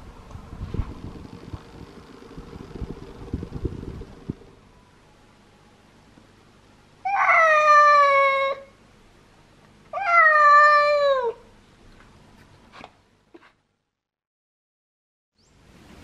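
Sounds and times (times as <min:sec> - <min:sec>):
cat meowing: 0:07.1 - 0:08.7, 0:09.9 - 0:11.4.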